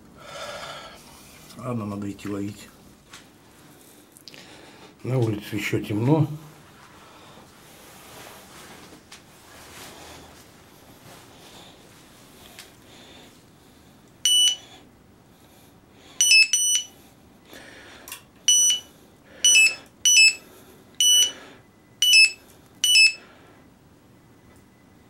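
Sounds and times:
electronic bite alarm beeping: 14.2 - 14.6, 16.2 - 17.0, 18.5 - 20.4, 21.0 - 21.4, 22.0 - 23.2.

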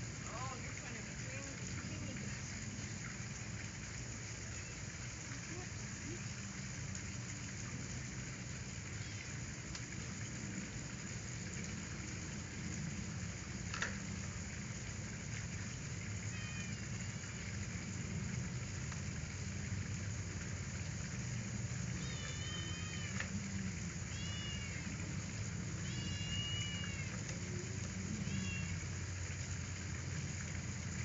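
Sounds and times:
faint kitten meow: 9.0 - 9.4, 16.3 - 17.4, 22.0 - 23.3, 24.1 - 25.0, 25.8 - 27.3, 28.1 - 28.9.

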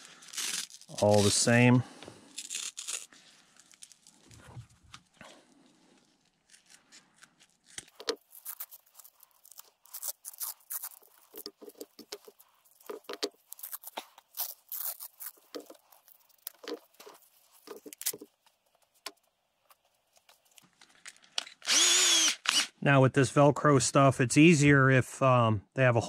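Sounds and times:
velcro crackling: 0.0 - 20.7.

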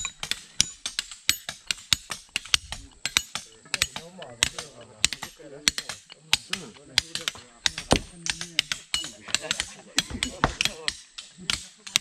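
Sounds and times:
rapid sharp knocks: 0.0 - 12.0
person talking: 2.6 - 10.9.

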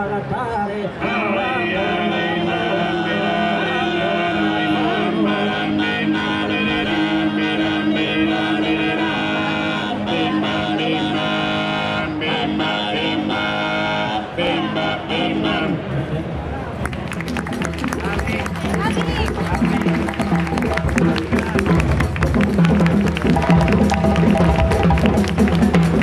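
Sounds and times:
men singing in close harmony: 0.6 - 15.8.

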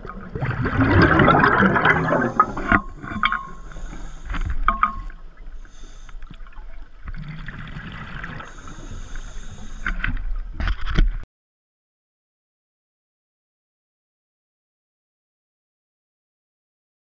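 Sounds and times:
exhaled bubbles rushing: 0.0 - 3.8, 6.5 - 8.5.

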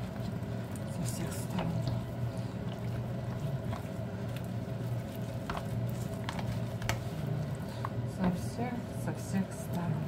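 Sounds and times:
wet squelching of hands in marinade: 0.0 - 8.0
steady low hum: 0.0 - 10.0.

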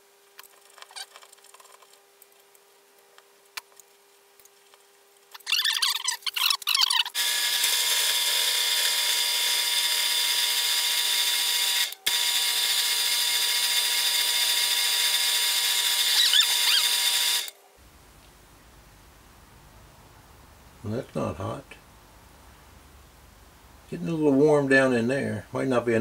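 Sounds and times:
drill press motor whining: 7.0 - 17.5.

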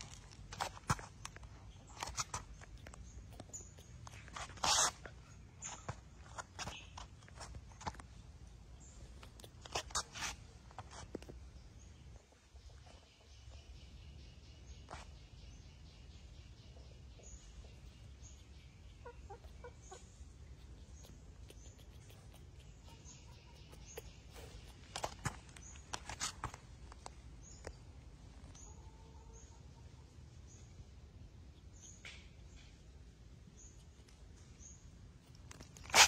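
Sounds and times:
faint high animal chirps: 2.0 - 5.9, 17.2 - 25.3.

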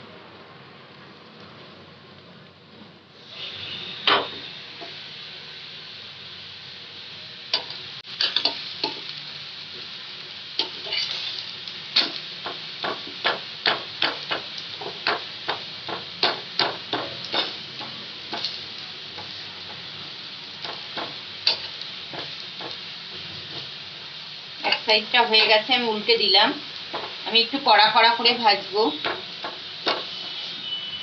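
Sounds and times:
paratha sizzling on a griddle: 0.0 - 31.0
metal spatula scraping a pan: 10.6 - 12.2, 17.2 - 17.6, 29.0 - 30.8.

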